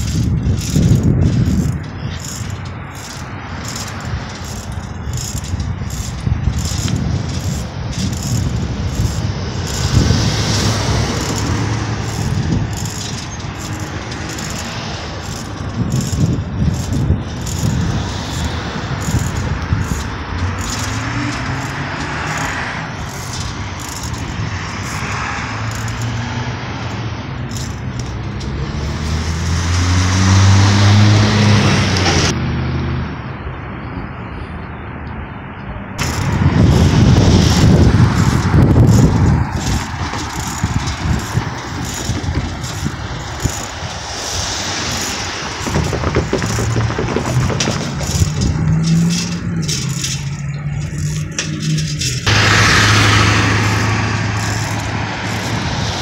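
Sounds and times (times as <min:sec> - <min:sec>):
low rush of passing vehicle: 0:00.0 - 0:56.0
vehicle engine speeding past: 0:28.4 - 0:33.0, 0:52.3 - 0:56.0.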